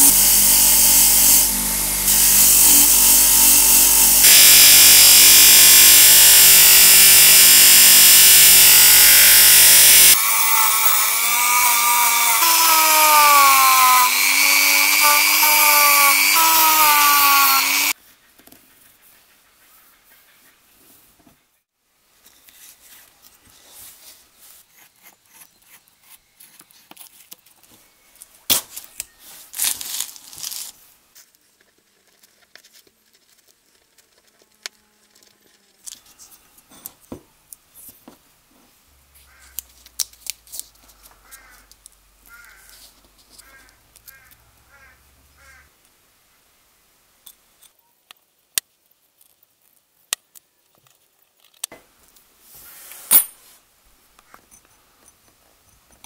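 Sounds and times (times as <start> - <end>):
tape clicks and rubbing: 28.5 - 36.3, 39.5 - 42.0
masking tape tearing: 29.5 - 30.8.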